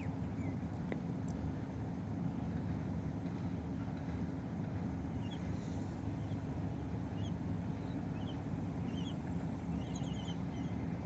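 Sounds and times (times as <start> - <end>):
low outdoor rumble: 0.0 - 11.0
bird chirps: 8.1 - 10.8.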